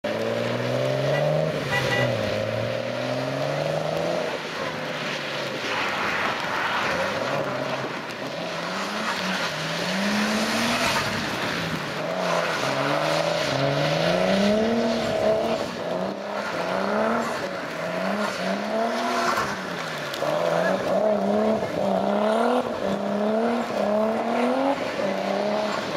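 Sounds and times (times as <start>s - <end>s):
tyres hissing on wet tarmac: 0.1s - 25.9s
car engine revving: 6.3s - 25.9s.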